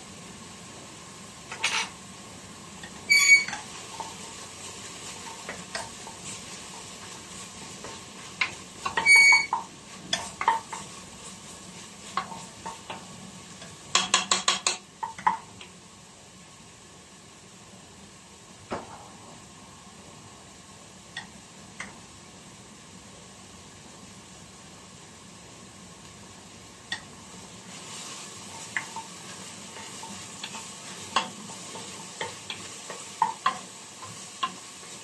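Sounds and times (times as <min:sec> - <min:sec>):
onions sizzling in oil: 0:00.0 - 0:35.0
wooden spoon scraping pot: 0:02.8 - 0:13.0.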